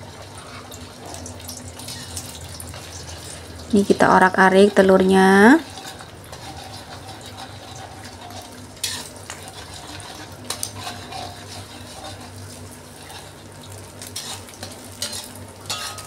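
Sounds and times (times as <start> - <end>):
eggs frying in hot oil: 0.0 - 16.0
metal spatula scraping a wok: 1.8 - 3.4, 5.6 - 16.0.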